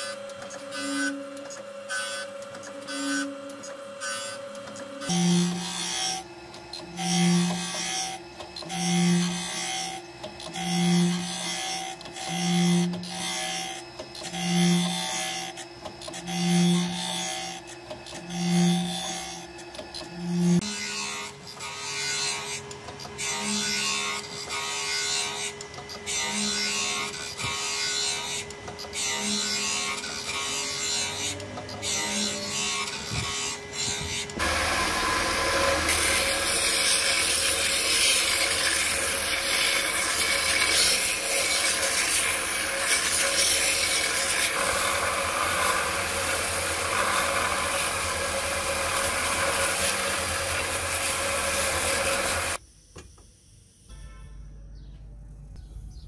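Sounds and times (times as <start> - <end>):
low hum: 52.6 - 56.0.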